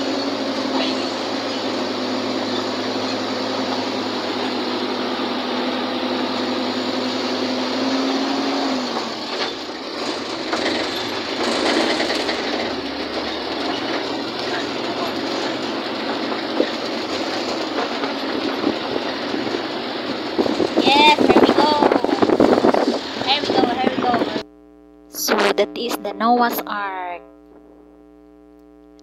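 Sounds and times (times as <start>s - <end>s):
vehicle engine and road hum: 0.0s - 24.5s
uneven rumble: 8.9s - 28.2s.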